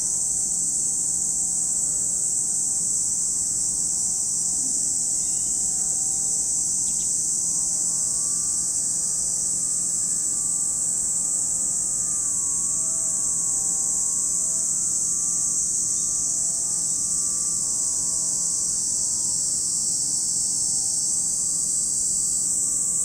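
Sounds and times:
cicadas singing: 0.0 - 23.0
faint hum: 0.0 - 23.0.

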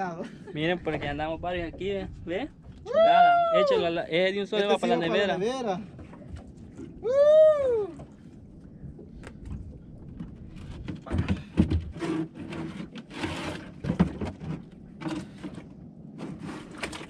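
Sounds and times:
ice chest lid knocks and clunks: 10.8 - 12.1
rustling scrape: 11.9 - 17.0.

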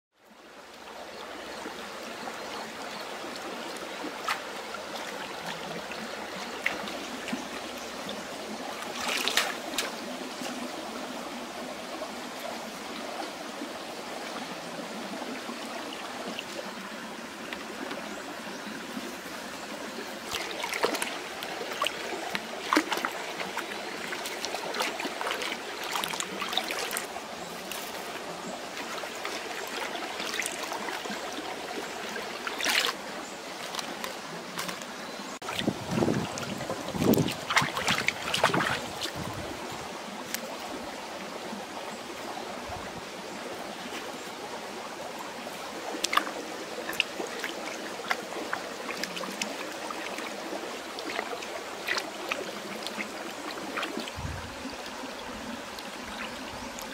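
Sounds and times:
stream water running: 0.2 - 56.9
hands splashing in water: 8.9 - 10.0, 33.6 - 39.3.

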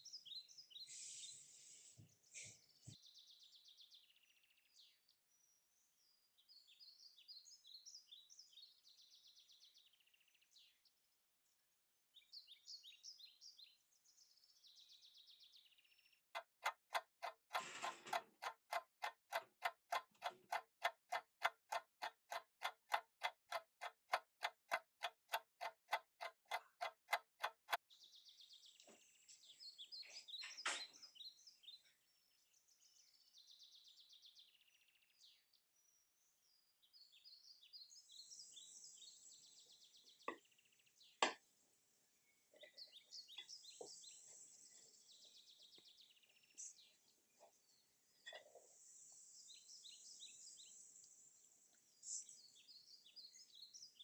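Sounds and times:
clock-like ticking: 16.4 - 27.8.

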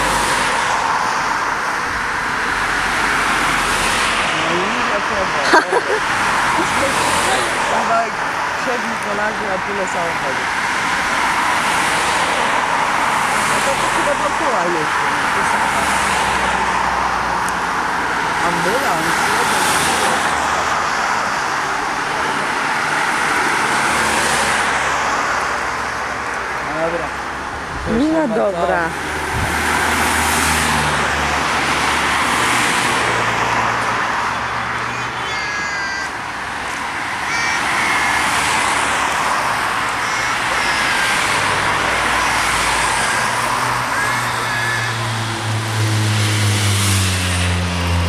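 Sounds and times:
road traffic noise: 0.0 - 48.0
vehicle engine hum: 0.0 - 48.0
vehicle driving past: 41.0 - 48.0.

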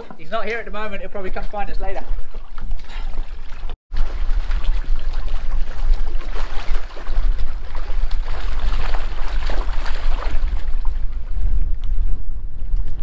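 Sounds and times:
water splashing from fin kicks: 1.4 - 11.6
wind rumble on microphone: 3.6 - 13.0.

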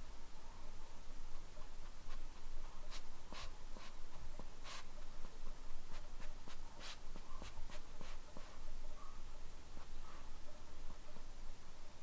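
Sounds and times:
dog sniffing: 1.6 - 5.1, 5.9 - 8.6.

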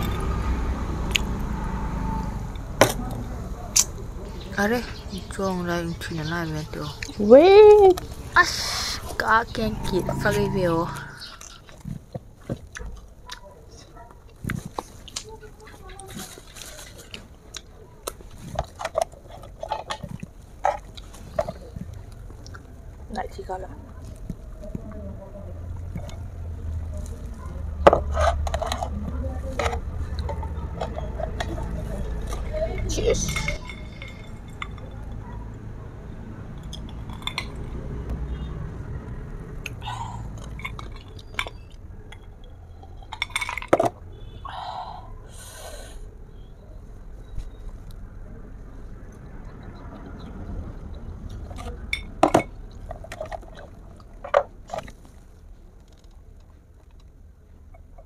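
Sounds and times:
chewing: 10.9 - 22.8
glass clinks: 32.7 - 35.2.

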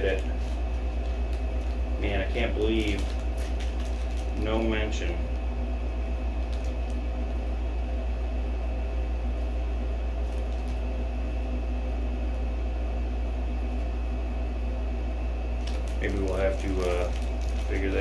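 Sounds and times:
plastic bag crinkling: 0.0 - 5.1, 6.3 - 7.1, 10.2 - 10.9, 15.6 - 18.0
low mechanical hum: 0.0 - 18.0.

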